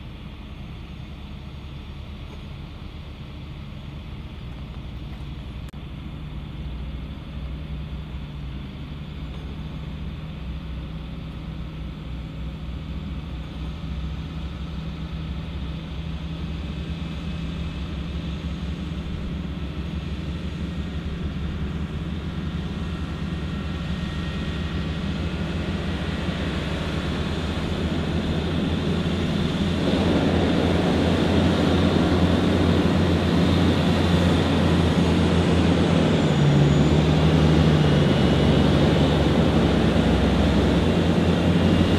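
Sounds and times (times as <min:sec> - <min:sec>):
diesel engines humming: 0:00.0 - 0:41.9.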